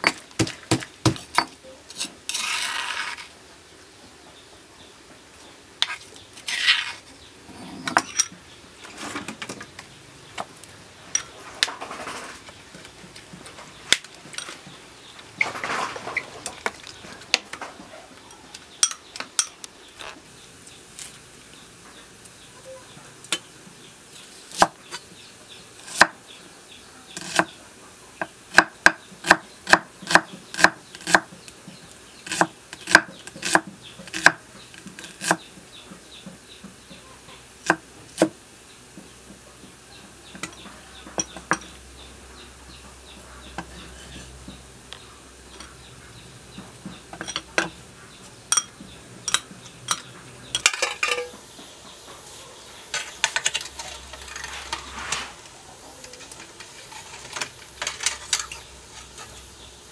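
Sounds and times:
cleaver chopping on wooden board: 0:00.0 - 0:01.5, 0:28.5 - 0:31.3, 0:32.3 - 0:34.4.

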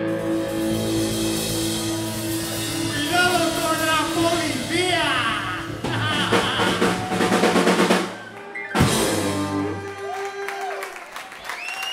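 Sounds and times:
rock band playing: 0:00.0 - 0:11.3
fast drum roll: 0:00.6 - 0:09.8
loud final band hit: 0:08.8 - 0:09.9.

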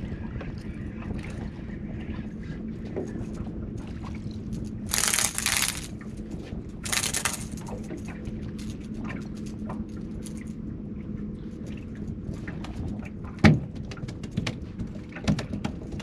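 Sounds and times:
low rumble of wind and water: 0:00.0 - 0:16.0.

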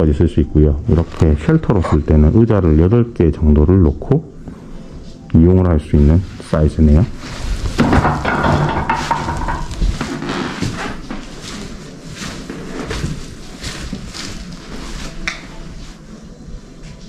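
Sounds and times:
footsteps: 0:06.1 - 0:17.0
soft scuffs and knocks: 0:07.0 - 0:15.9.

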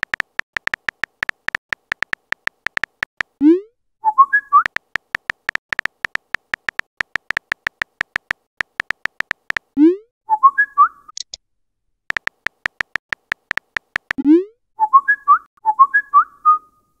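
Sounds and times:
phone keyboard clicks: 0:00.0 - 0:03.4, 0:04.6 - 0:09.8, 0:12.1 - 0:14.2.

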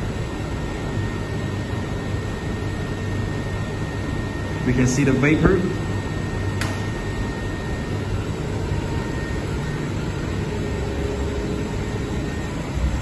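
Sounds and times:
heat pump machine hum: 0:00.0 - 0:13.0
sharp click: 0:06.6 - 0:07.0.

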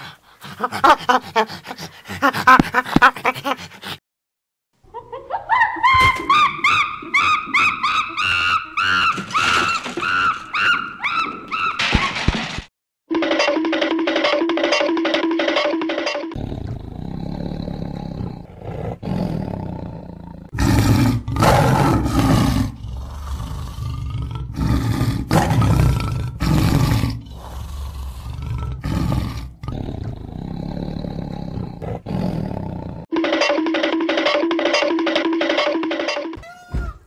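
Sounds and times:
tiger growling and roaring: 0:16.3 - 0:33.1.

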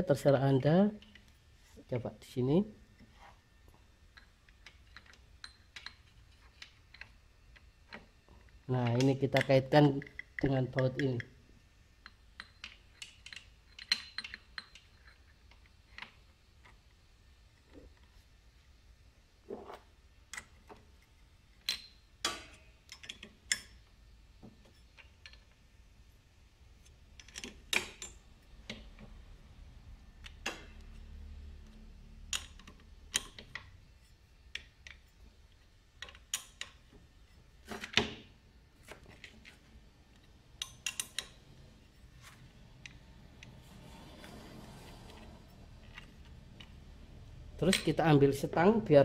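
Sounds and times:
metal clicks and clinks: 0:12.0 - 0:16.1, 0:40.6 - 0:41.4.

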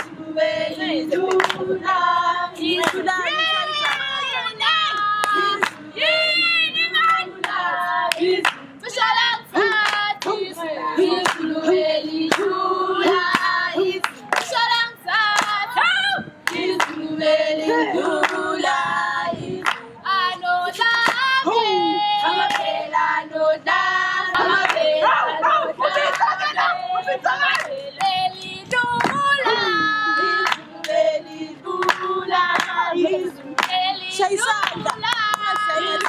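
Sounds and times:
girls singing together: 0:00.0 - 0:36.0
sharp hand claps: 0:01.3 - 0:01.6, 0:04.9 - 0:05.8, 0:09.7 - 0:10.4, 0:11.2 - 0:11.5, 0:15.4 - 0:15.6, 0:19.6 - 0:19.8, 0:31.8 - 0:32.0.

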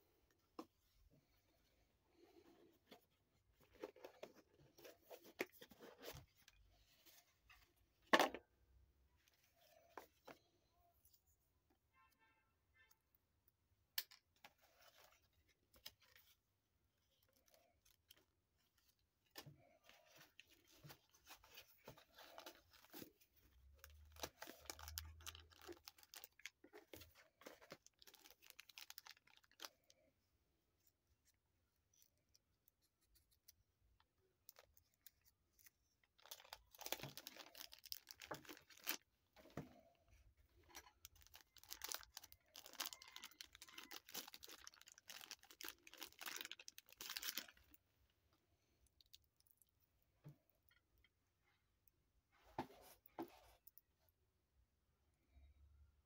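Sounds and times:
paper and plastic packaging crinkling: 0:19.6 - 0:29.9, 0:34.5 - 0:39.0, 0:40.6 - 0:47.8.

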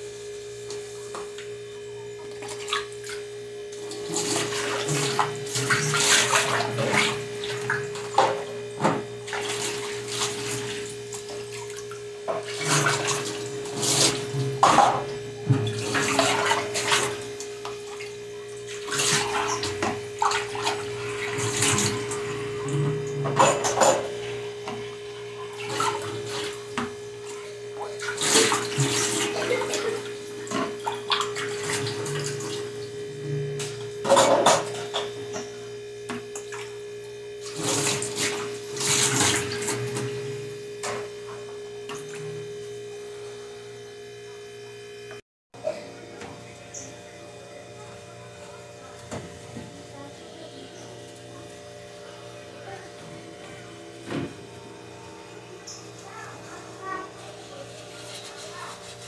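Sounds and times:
steady hum: 0:00.0 - 0:59.0
water splashing at sink: 0:02.2 - 0:33.0, 0:36.1 - 0:42.6.

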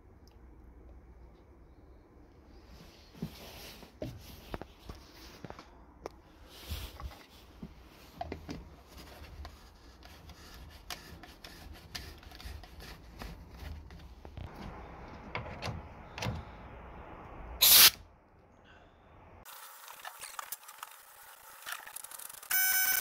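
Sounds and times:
low steady hum: 0:00.0 - 0:11.9, 0:12.6 - 0:19.5
compressed air blast: 0:17.6 - 0:18.0.

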